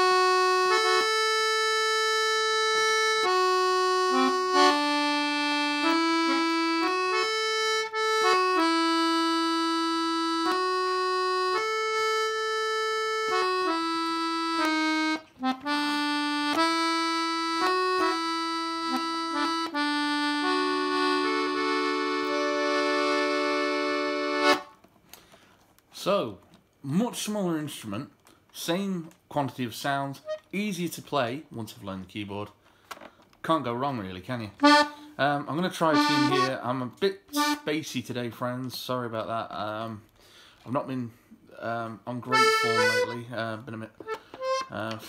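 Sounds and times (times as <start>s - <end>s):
button accordion melody: 0.0s - 24.8s, 30.2s - 30.5s, 34.6s - 37.7s, 41.7s - 45.0s.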